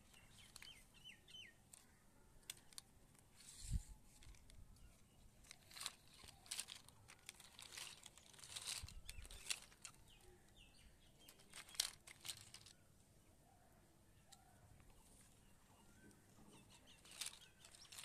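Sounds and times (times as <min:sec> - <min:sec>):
rustling against cloth: 0:01.7 - 0:12.8, 0:14.9 - 0:18.0
plastic toys clicking and knocking: 0:05.5 - 0:10.0, 0:11.3 - 0:12.7, 0:16.9 - 0:18.0.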